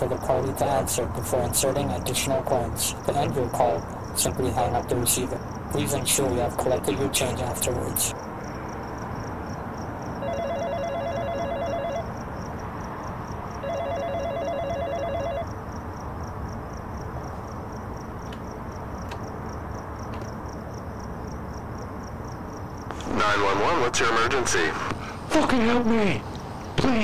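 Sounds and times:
warbling telephone ringback tone: 10.2s - 12.1s, 13.6s - 15.5s.

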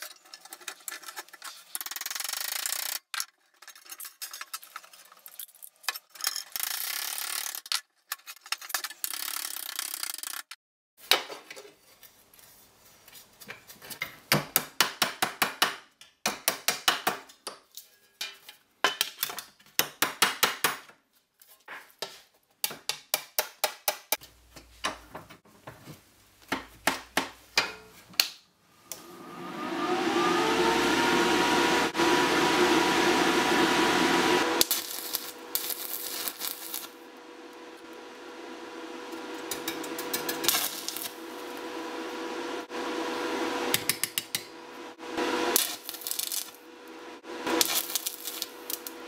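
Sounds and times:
angle grinder whine: 28.9s - 49.0s
welding arc crackle: 34.4s - 37.9s, 39.3s - 41.7s, 45.4s - 46.7s, 47.4s - 49.0s.

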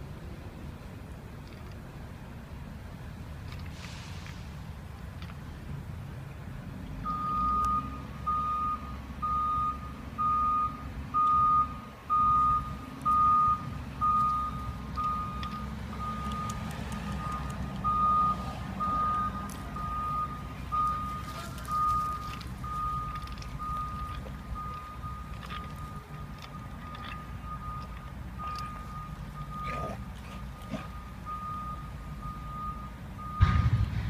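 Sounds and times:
engine rumble: 0.0s - 34.0s
vehicle reversing beeper: 7.0s - 34.0s.

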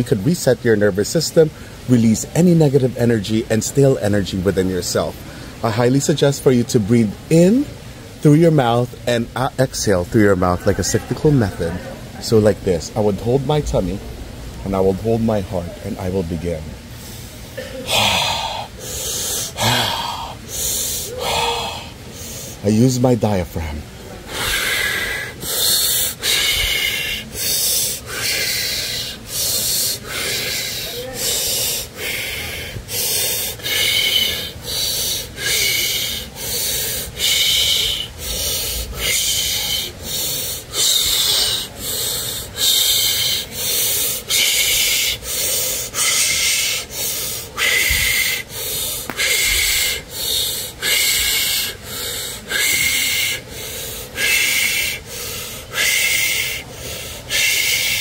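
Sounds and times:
man breathing rapidly: 1.4s - 1.9s, 5.0s - 5.8s, 16.8s - 22.7s, 23.9s - 58.0s.

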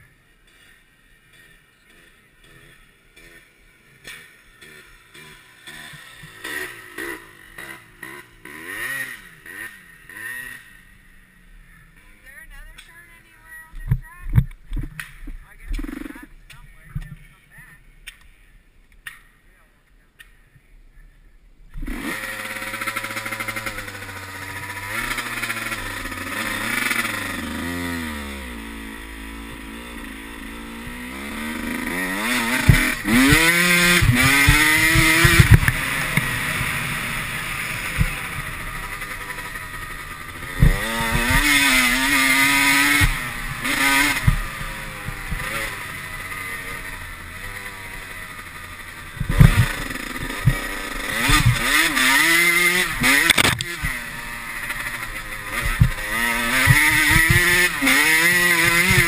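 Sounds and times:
dirt bike engine revving: 0.0s - 18.4s, 21.7s - 59.0s
bike knocking over bumps: 32.2s - 36.4s, 40.5s - 45.6s, 49.1s - 52.4s, 55.6s - 59.0s.

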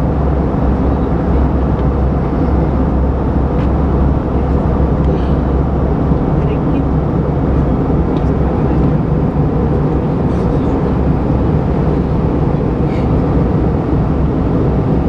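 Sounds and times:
airplane cabin rumble: 0.0s - 15.0s.

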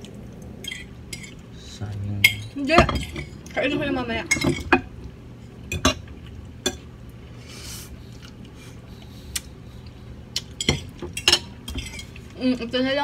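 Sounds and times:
forks clinking on plates: 10.6s - 12.2s.

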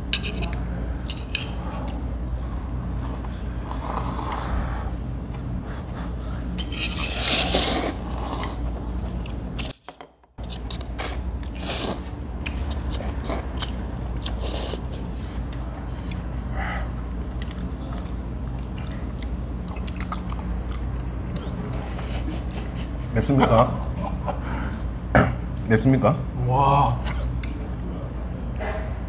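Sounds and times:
steady low hum: 0.0s - 29.0s
chewing and slurping: 10.4s - 22.2s.

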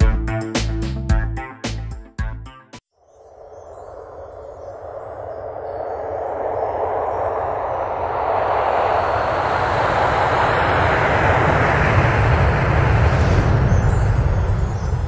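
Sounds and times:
deep rumble: 4.0s - 15.0s.

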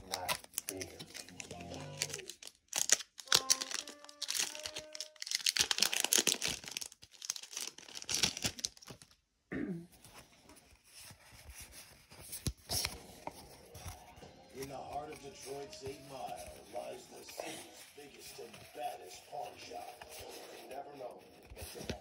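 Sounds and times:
foil pack tearing and crinkling: 0.0s - 9.2s.

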